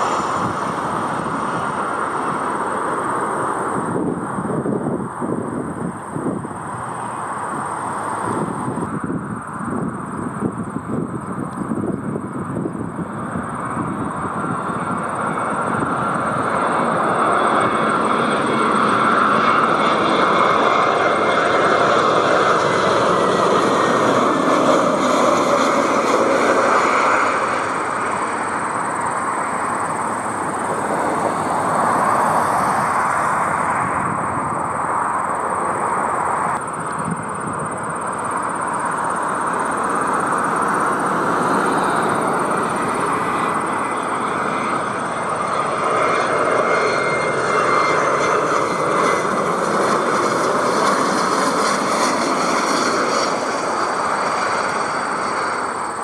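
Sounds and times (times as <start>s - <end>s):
jet airliner passing: 0.0s - 56.0s
small jet engines: 0.0s - 56.0s.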